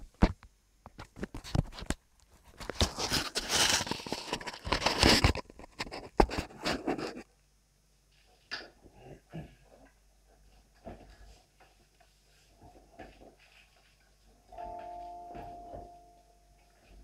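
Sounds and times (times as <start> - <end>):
scraping and crackling handling noise: 0.2 - 7.3.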